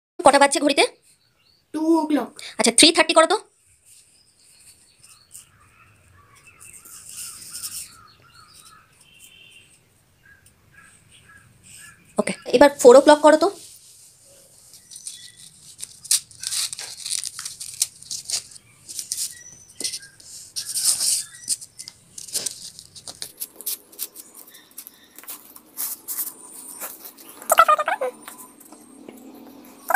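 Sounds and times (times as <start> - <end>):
cardboard and paper rustling: 13.6 - 27.6.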